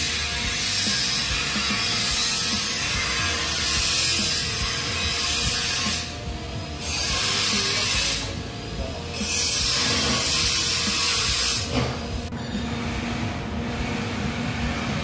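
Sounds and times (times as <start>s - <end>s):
utility knife slicing vinyl flooring: 9.3s - 12.0s.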